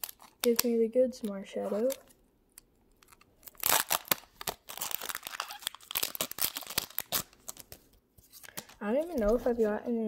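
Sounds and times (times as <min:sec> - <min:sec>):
foil wrapper tearing and crinkling: 0:00.0 - 0:00.8, 0:03.0 - 0:07.8.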